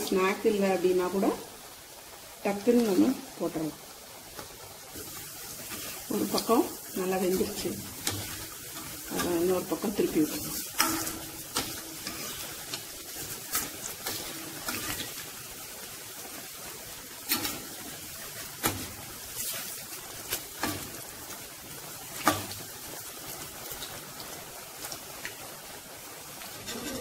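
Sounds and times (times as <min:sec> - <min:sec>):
oil sizzling: 0:00.0 - 0:27.0
metal skimmer clicking on pan: 0:10.8 - 0:12.1.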